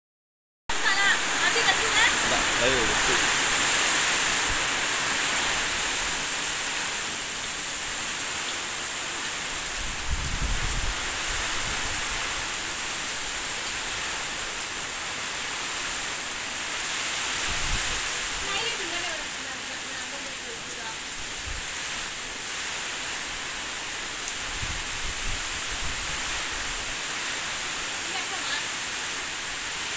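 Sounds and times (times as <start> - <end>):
heavy rain hissing: 0.7 - 29.9
wind buffeting microphone: 9.8 - 12.2, 17.3 - 18.8, 24.4 - 26.9.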